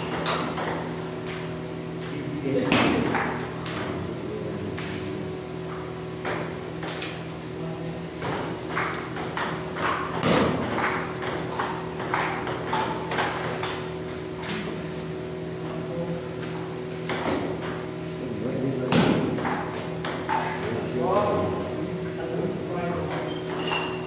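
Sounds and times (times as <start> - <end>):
table tennis ball hits: 0.0 - 4.0, 6.2 - 7.2, 8.2 - 14.7, 17.0 - 17.9, 18.9 - 21.3
steady low hum: 0.0 - 24.0.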